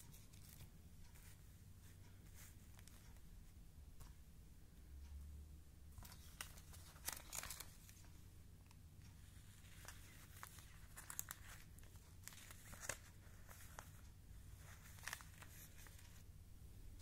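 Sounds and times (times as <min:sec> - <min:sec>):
plastic sleeves crinkling: 0:06.0 - 0:08.1, 0:09.2 - 0:16.2.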